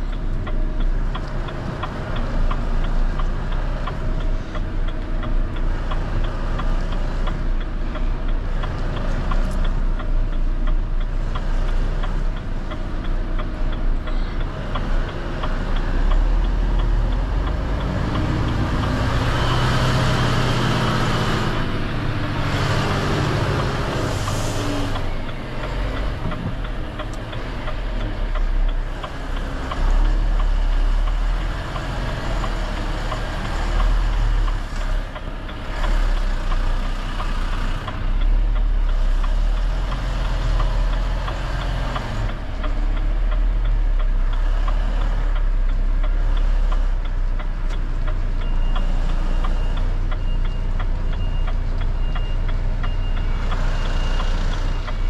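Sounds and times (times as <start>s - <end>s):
diesel truck engine rumbling: 0.0s - 55.0s
reversing alarm beeps: 48.4s - 55.0s.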